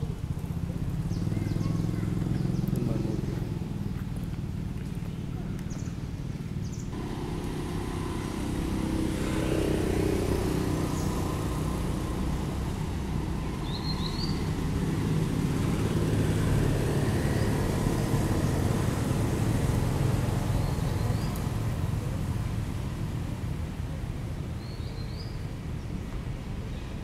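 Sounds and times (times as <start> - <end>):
low engine rumble: 0.0 - 27.0.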